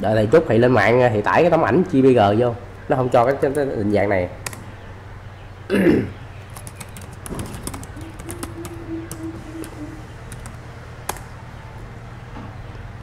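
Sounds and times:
low steady hum: 0:03.8 - 0:12.2
keyboard typing: 0:06.5 - 0:11.3
low held tone: 0:07.4 - 0:10.6.

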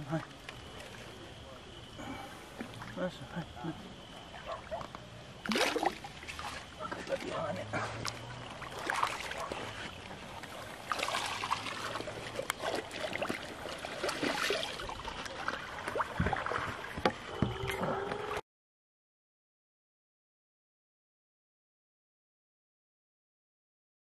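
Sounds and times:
water sloshing and splashing: 0:00.0 - 0:03.2, 0:03.9 - 0:18.4.

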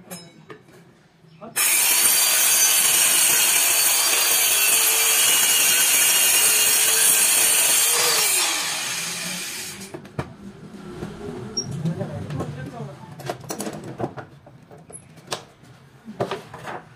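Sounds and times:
circular saw cutting board: 0:01.6 - 0:10.0.

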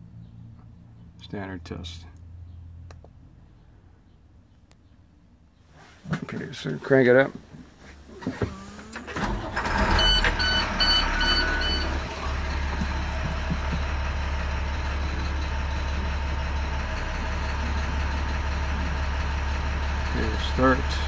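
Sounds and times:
diesel engine idling: 0:07.8 - 0:21.0
short electronic beeps: 0:09.8 - 0:12.1.

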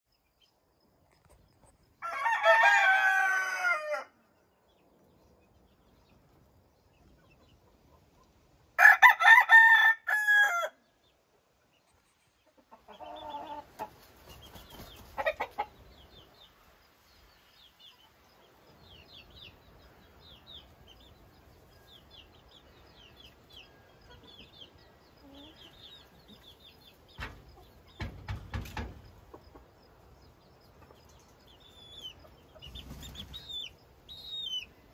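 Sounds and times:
small birds chirping: 0:00.1 - 0:02.1, 0:04.2 - 0:08.8, 0:10.8 - 0:34.9
rooster crowing: 0:02.0 - 0:04.2, 0:08.8 - 0:10.8.

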